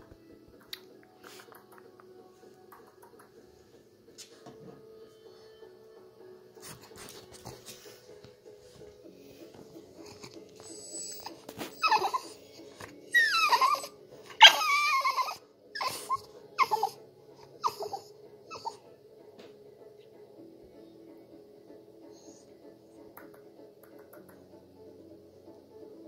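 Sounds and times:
dog whining and whimpering: 10.0 - 18.9.

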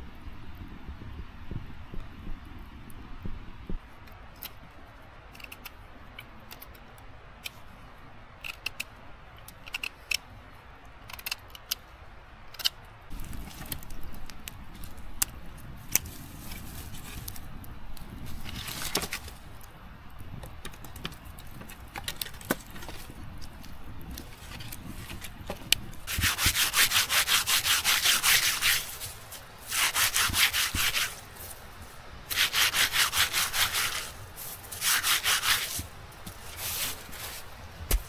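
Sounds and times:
rustling and scraping of branches: 3.7 - 38.0
wood clicking and snapping: 8.4 - 10.2, 11.0 - 11.9, 12.5 - 12.8, 20.4 - 26.0.

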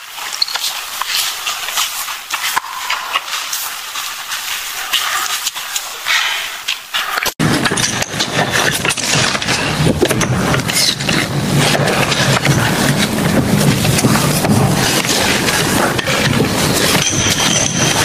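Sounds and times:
metal track links clanking: 7.4 - 18.0.

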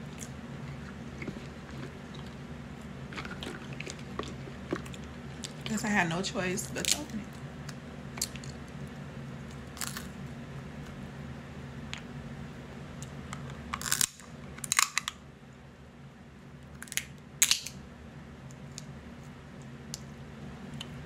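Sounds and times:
crab shells cracking: 13.7 - 15.2, 16.8 - 17.8.

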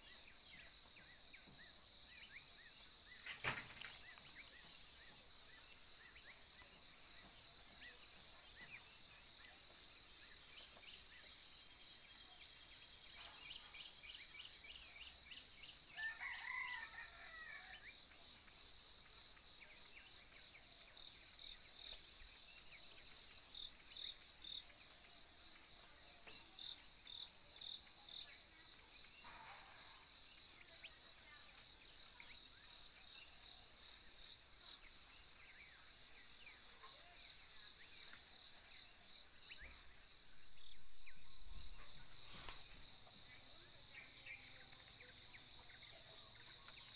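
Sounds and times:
rooster crowing: 16.0 - 17.9.

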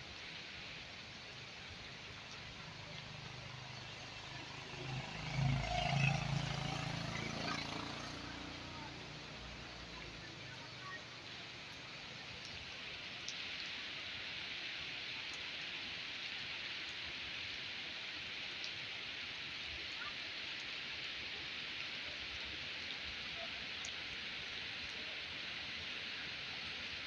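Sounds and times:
rain falling on trees: 0.0 - 27.0
faint drip ticks: 1.1 - 6.0, 7.5 - 14.4, 15.2 - 17.0, 22.8 - 26.7.

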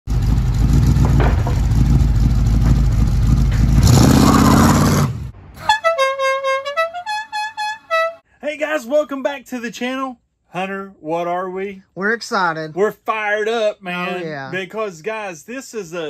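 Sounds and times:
vehicle engine rumble: 0.0 - 5.8
horn-like note tune: 5.6 - 8.2
vehicle horn: 5.6 - 8.2.

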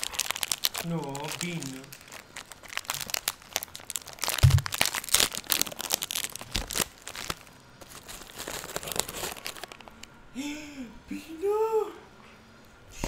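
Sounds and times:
plastic wrapper crinkling: 0.0 - 10.1
dull thumps: 4.3 - 4.8.

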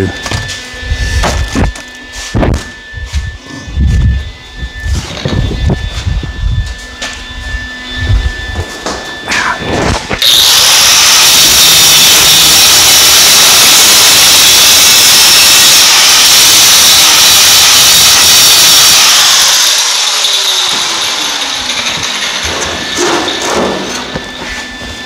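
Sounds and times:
grinder cutting sheet steel: 9.6 - 24.3.

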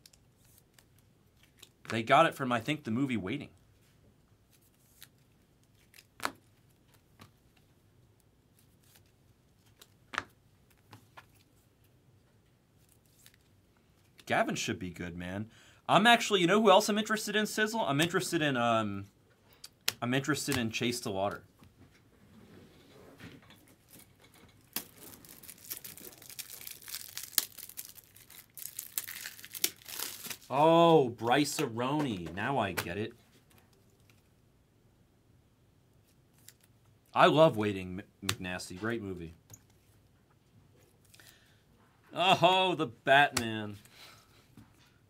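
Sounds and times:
plastic packaging crackling: 23.7 - 30.6.

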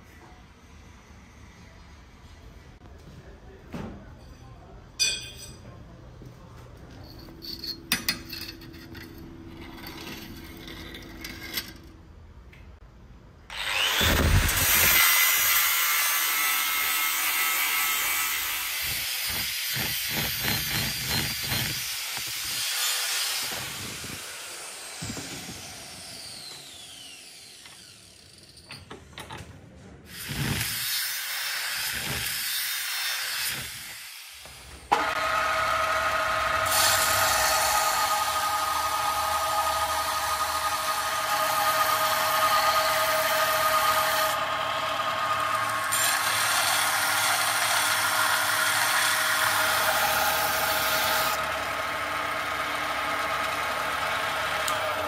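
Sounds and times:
belt grinder humming: 13.5 - 28.6
angle grinder cutting steel: 13.5 - 28.7, 30.1 - 55.0.

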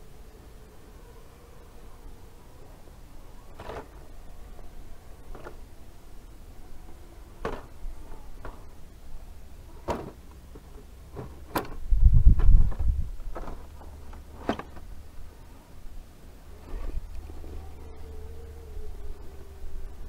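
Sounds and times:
wind rumble on microphone: 11.2 - 14.1.

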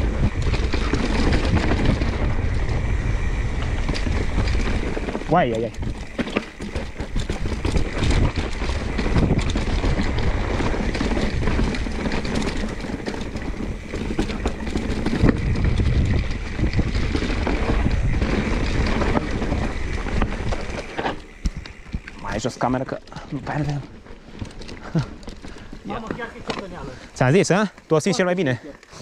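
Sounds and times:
wind on microphone: 0.0 - 22.4
bike rattling and knocking: 0.0 - 29.0
bike tyre rumble: 0.0 - 29.0.

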